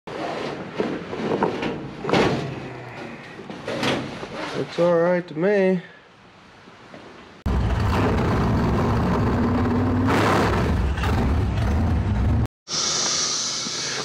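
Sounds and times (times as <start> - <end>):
race car engine at high revs: 7.6 - 11.2.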